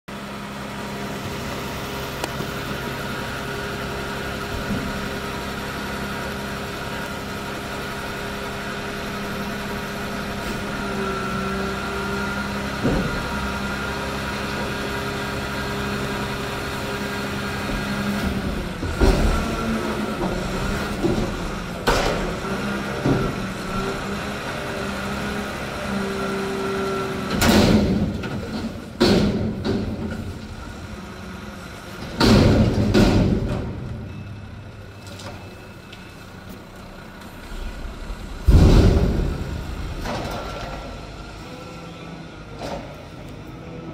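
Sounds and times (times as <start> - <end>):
garbage truck diesel engine running: 0.1 - 43.9
loud metal clanks and bangs: 27.3 - 30.6, 32.0 - 34.6, 37.3 - 41.4.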